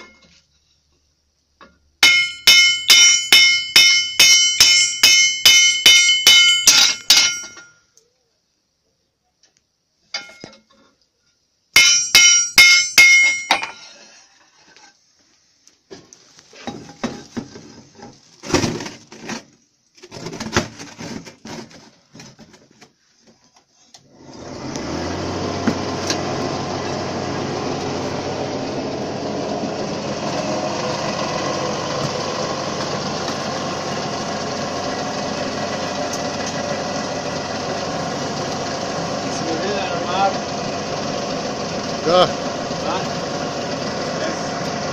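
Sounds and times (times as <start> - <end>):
metal clanks and knocks: 0.0 - 0.5, 1.6 - 7.8, 10.1 - 11.0, 11.8 - 14.0, 15.9 - 19.5
hammer ringing on anvil: 2.0 - 7.8, 11.8 - 13.8.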